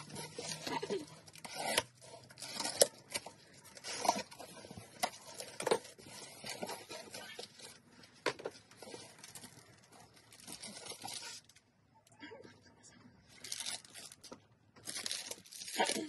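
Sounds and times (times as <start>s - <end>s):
cardboard box being unpacked: 0.0s - 11.6s, 14.8s - 16.0s.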